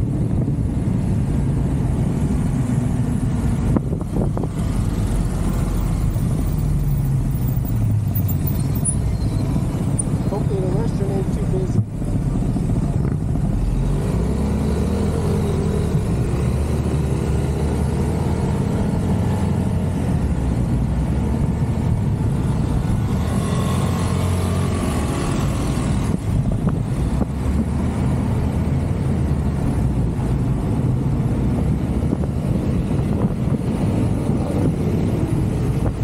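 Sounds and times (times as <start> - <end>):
road noise: 0.0 - 36.0.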